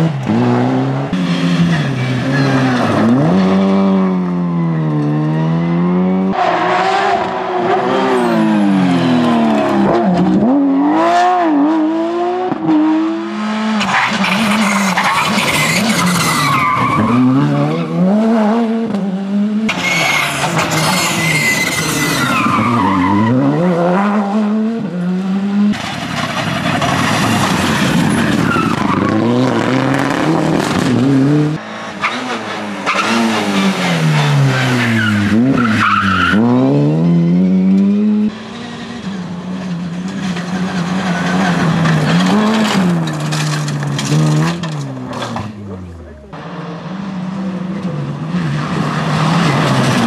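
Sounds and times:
rally car engines revving: 0:00.0 - 0:50.0
tyres on gravel: 0:25.7 - 0:29.4, 0:39.8 - 0:46.3.

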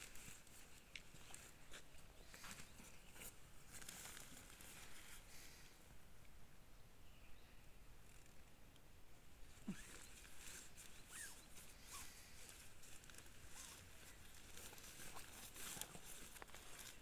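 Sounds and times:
tent fabric rustling: 0:00.0 - 0:05.7, 0:09.5 - 0:17.0.

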